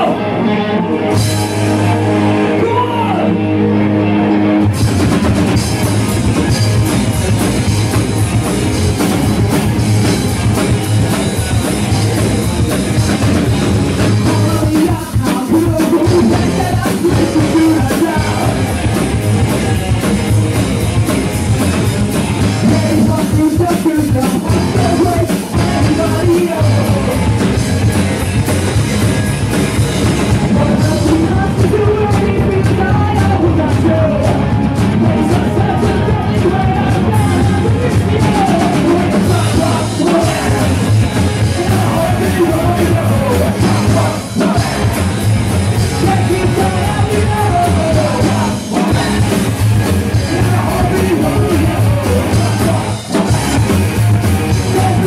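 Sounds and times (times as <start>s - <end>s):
live rock band playing: 0.0s - 55.0s
person singing: 14.0s - 20.1s, 22.5s - 27.6s, 30.3s - 45.2s, 45.8s - 53.3s, 54.4s - 55.0s.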